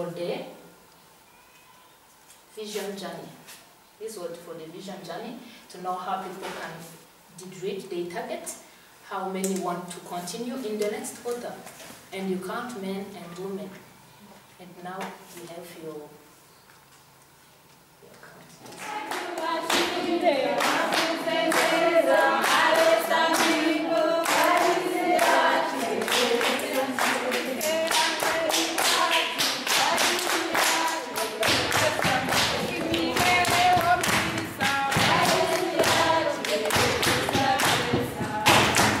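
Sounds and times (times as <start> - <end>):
group of voices singing: 18.7 - 39.0
rhythmic hand clapping: 18.7 - 39.0.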